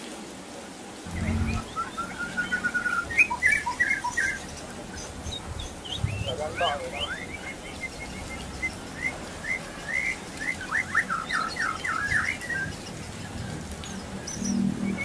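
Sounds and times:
low hum: 1.1s - 3.7s
bird whistling and chirping: 1.1s - 13.4s, 14.2s - 15.0s.

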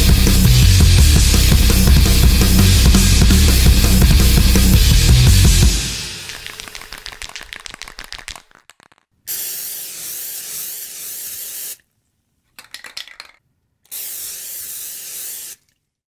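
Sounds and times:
spray can hissing: 5.8s - 11.8s, 13.9s - 15.7s
spray can ball rattling: 6.0s - 11.8s, 12.5s - 15.8s.

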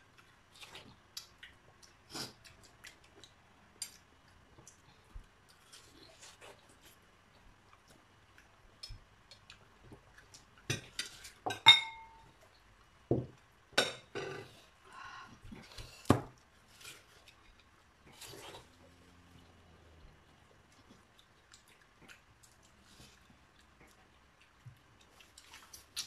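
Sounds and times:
plates and cutlery clinking: 10.7s - 12.3s
plate ringing: 11.7s - 12.2s.

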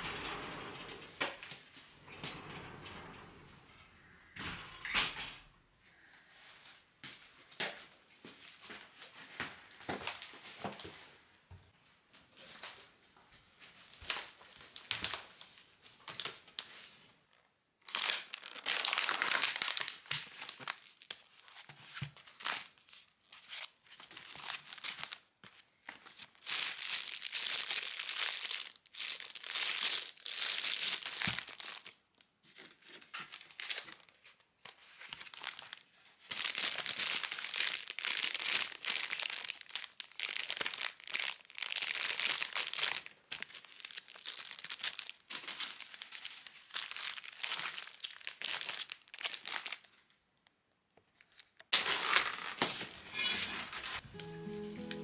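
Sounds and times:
plastic packaging crinkling: 17.8s - 50.0s.

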